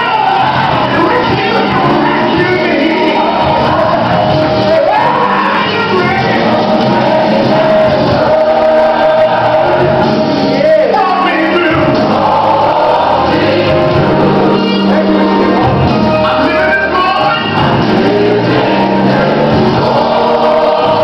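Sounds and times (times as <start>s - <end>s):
choir singing gospel song: 0.0s - 21.0s
instrumental backing: 0.0s - 21.0s.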